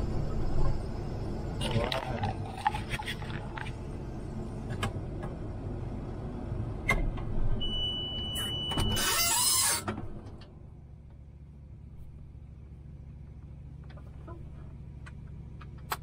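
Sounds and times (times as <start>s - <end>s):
high beep: 7.6s - 9.0s.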